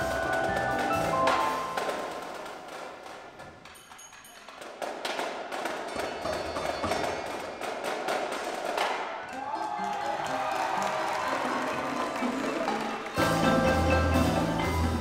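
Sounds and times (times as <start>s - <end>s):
percussion ensemble playing: 0.0s - 15.0s
sharp percussion strikes: 3.7s - 10.9s, 11.9s - 15.0s.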